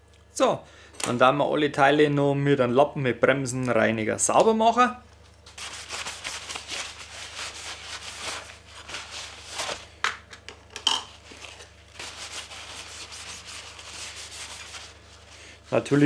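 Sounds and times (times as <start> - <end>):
rag scrubbing plastic parts: 11.2 - 15.3.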